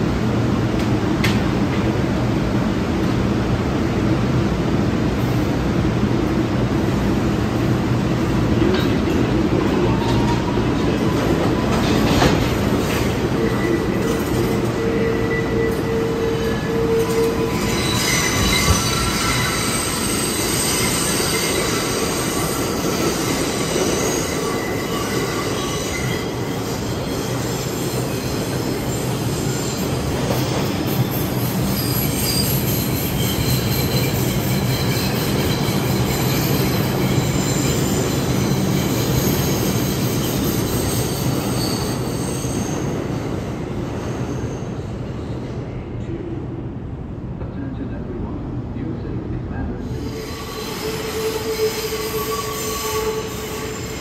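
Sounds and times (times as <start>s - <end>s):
subway train rumbling: 0.0s - 54.0s
wheels squealing on rails: 8.1s - 46.1s, 49.7s - 54.0s.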